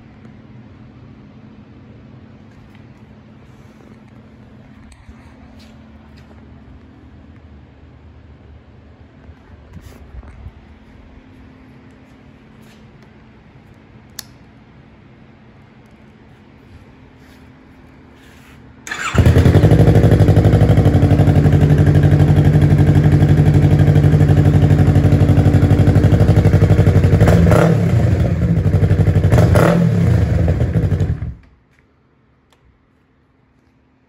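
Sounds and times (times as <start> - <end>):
motorcycle engine idling and revving: 18.9 - 31.4.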